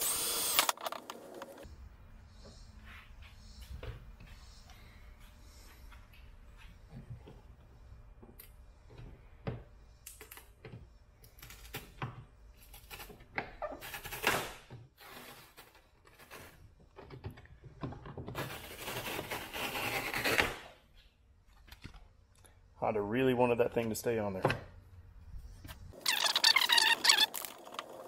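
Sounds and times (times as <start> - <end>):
drill boring out rivets: 0.0 - 0.8.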